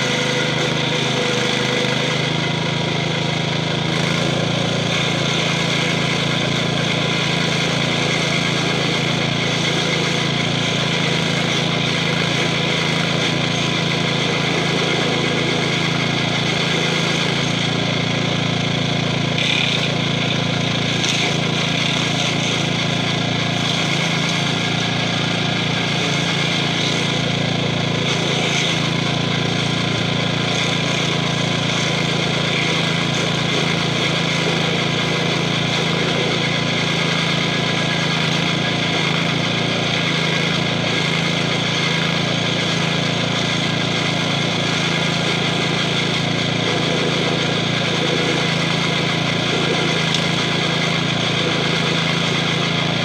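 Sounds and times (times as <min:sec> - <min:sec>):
cutter wheel grinding stump: 0:00.0 - 0:53.0
single-cylinder engine running: 0:00.0 - 0:53.0.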